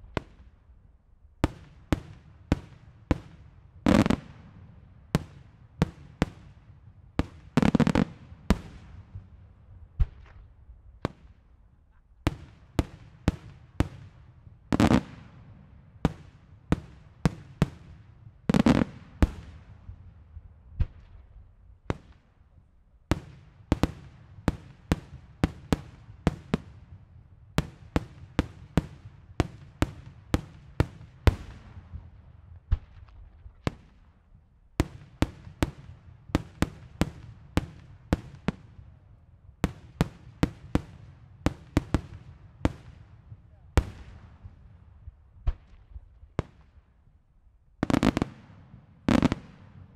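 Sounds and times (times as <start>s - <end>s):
fireworks bursting with sharp bangs: 0.0s - 0.8s, 1.4s - 11.6s, 12.2s - 47.0s, 47.8s - 49.9s
heavy fireworks booms: 47.8s - 49.9s.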